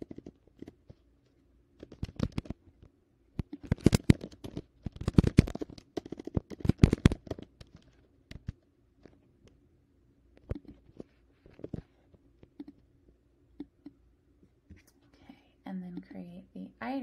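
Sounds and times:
keyboard typing clicks: 12.4s - 12.8s.

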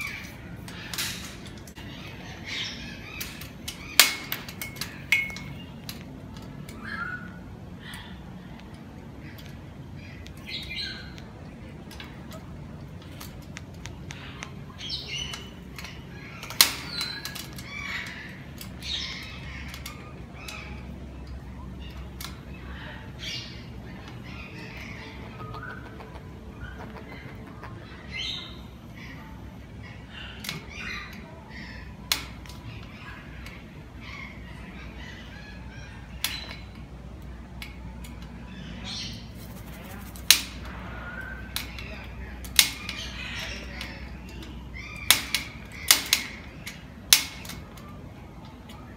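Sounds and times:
faint bird chirping: 14.1s - 36.9s
bird chirps and calls: 21.8s - 31.9s.

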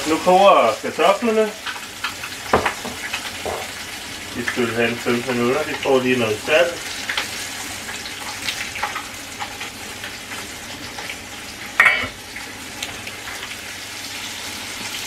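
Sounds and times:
chicken sizzling in a frying pan: 0.0s - 15.0s
metal pot lid clinking: 11.8s - 12.2s.

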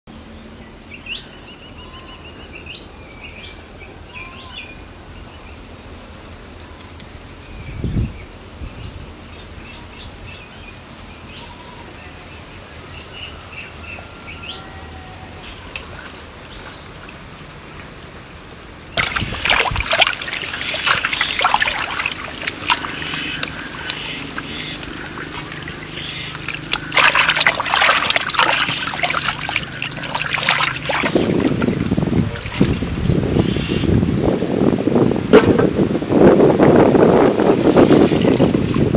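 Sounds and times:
birds chirping: 19.0s - 32.2s
loud spattering splashing noise: 19.0s - 33.0s.

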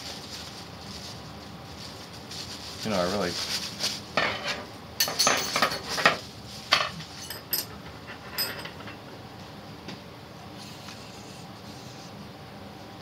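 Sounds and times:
plastic bag rustling: 0.0s - 4.2s, 5.4s - 7.2s.

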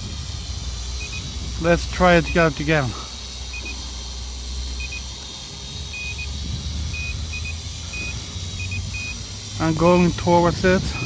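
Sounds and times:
wind buffeting microphone: 0.0s - 1.8s, 5.6s - 9.3s, 10.3s - 11.0s
short high electronic beeps: 1.0s - 1.3s, 3.5s - 3.8s, 4.8s - 5.1s, 5.9s - 9.2s.

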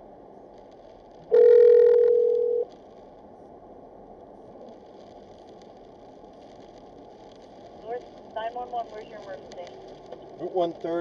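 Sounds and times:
faint road noise: 0.0s - 11.0s
telephone beep: 1.3s - 2.7s.

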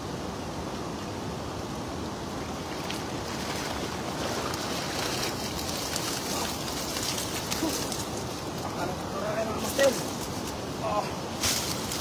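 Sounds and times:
wind rumbling on microphone: 0.0s - 12.0s
water splashing and dripping: 2.6s - 8.6s.

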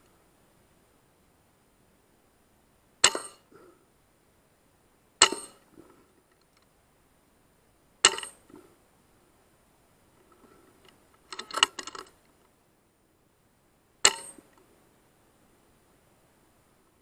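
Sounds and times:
air rifle shots: 3.0s - 3.4s, 5.2s - 5.7s.

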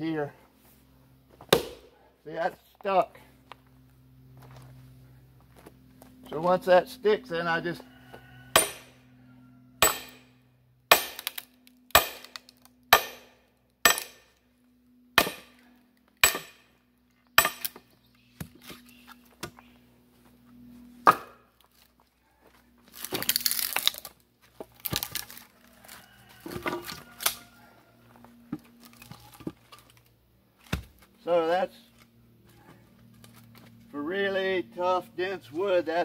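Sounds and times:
sledgehammer clanking on maul: 8.6s - 8.9s, 9.8s - 10.2s
knocks of wood and tools: 21.0s - 21.5s, 26.3s - 27.4s, 30.6s - 31.1s
wood tearing apart: 22.9s - 25.5s, 28.8s - 30.0s.

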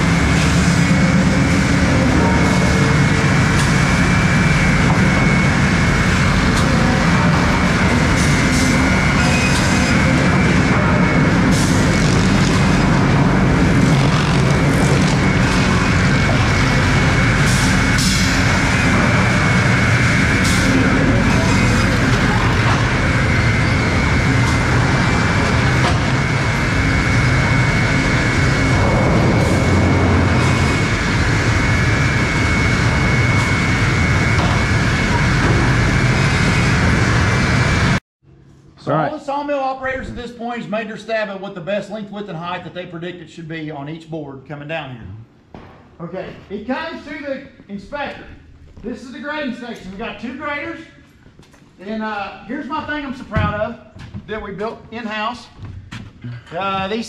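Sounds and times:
machinery motors and conveyors: 0.0s - 38.0s
high machine whine: 0.0s - 42.9s.

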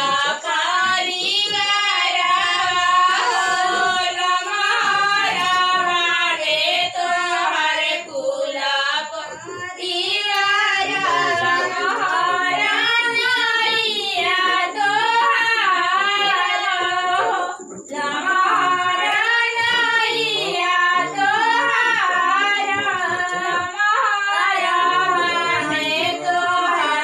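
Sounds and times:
women singing together: 0.0s - 27.0s.

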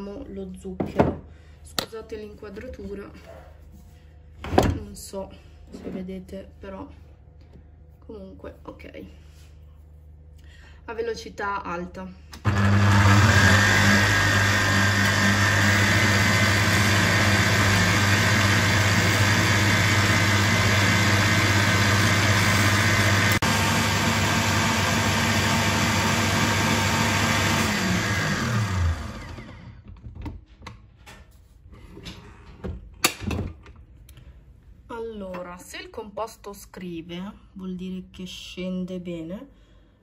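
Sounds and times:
stand mixer motor hum: 12.4s - 29.8s.

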